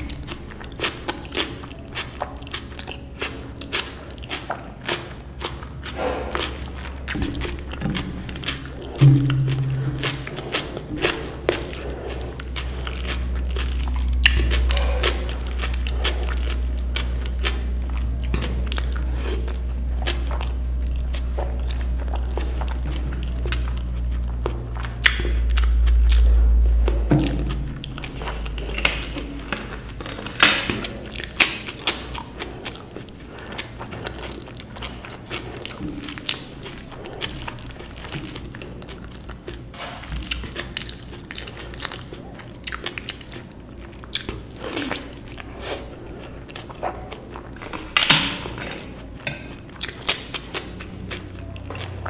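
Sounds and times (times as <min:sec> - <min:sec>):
person chewing and crunching: 0:00.0 - 0:52.0
low rumble: 0:05.9 - 0:31.3.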